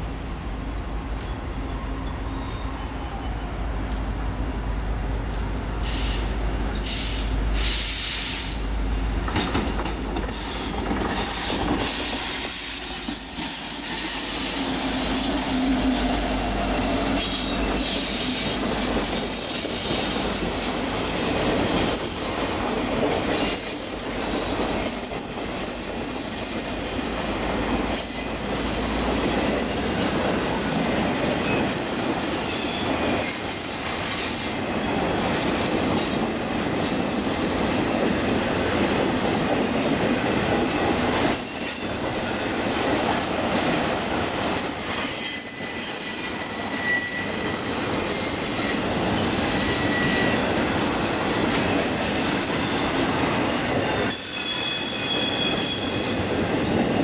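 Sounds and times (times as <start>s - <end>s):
freight train wheels clattering: 9.2s - 57.0s
high-pitched wheel squeal: 24.8s - 29.8s, 44.0s - 50.7s, 54.1s - 56.2s.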